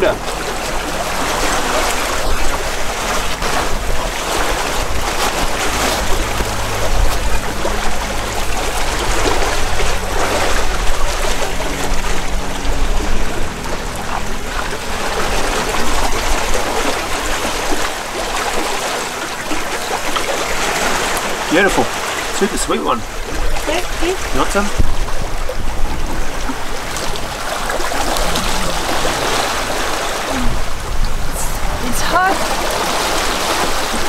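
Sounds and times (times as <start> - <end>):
water rushing along boat hull: 0.0 - 34.0.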